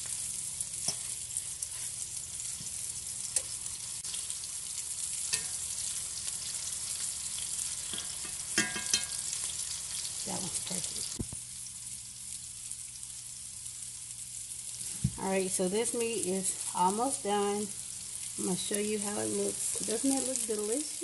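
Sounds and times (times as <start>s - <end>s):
meat sizzling in a skillet: 0.0s - 21.0s
fork clinking against pan: 5.3s - 5.6s, 7.9s - 9.2s.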